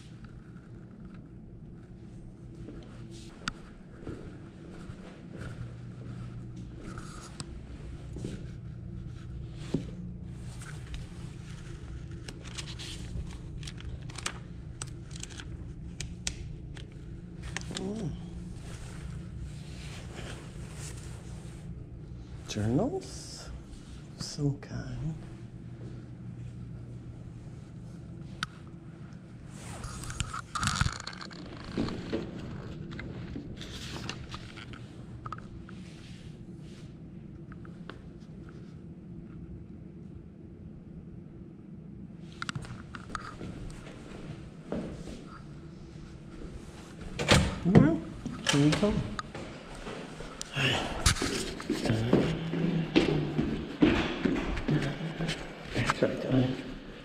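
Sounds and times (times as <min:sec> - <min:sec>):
low room hum: 0:00.0 - 0:57.0
paper poster rustling: 0:06.6 - 0:21.7, 0:29.4 - 0:35.0
paper rustling and scraping: 0:10.4 - 0:14.4
books clicking: 0:12.2 - 0:16.4.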